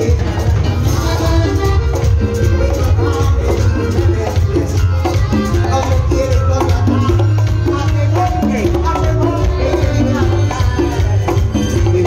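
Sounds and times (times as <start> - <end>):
bass line: 0.0 - 12.0
hand-drum percussion: 0.0 - 12.0.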